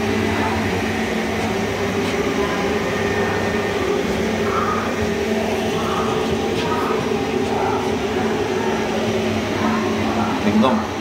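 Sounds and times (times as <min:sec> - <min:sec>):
low electrical hum: 0:00.0 - 0:11.0
train air-conditioning drone: 0:00.0 - 0:11.0.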